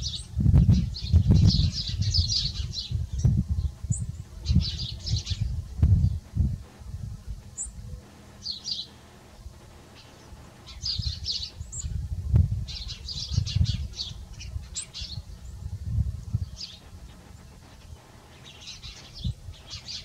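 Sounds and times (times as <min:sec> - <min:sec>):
small birds chirping: 0:00.0 - 0:20.0.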